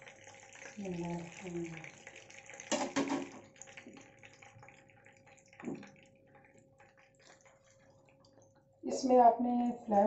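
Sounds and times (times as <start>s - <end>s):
hot oil sizzling and crackling: 0.0s - 5.9s.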